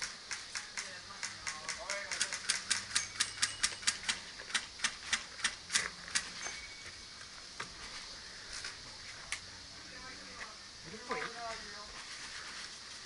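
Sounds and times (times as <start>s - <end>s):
airsoft guns firing clicks: 0.0s - 6.3s.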